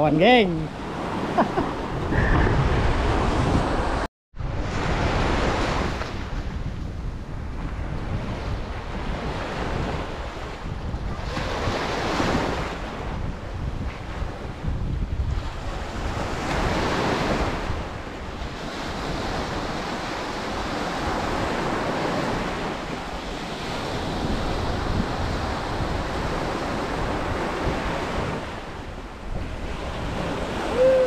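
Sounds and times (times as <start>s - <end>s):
surf washing onto beach: 0.2s - 6.7s
wind buffeting microphone: 0.3s - 31.0s.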